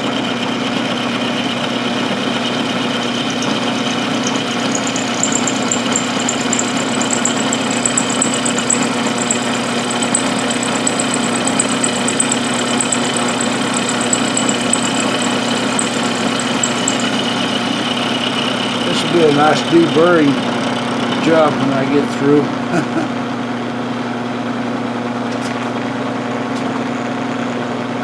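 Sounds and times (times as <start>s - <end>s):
milling machine hum: 0.0s - 22.7s
high whine from cutting: 1.5s - 22.6s.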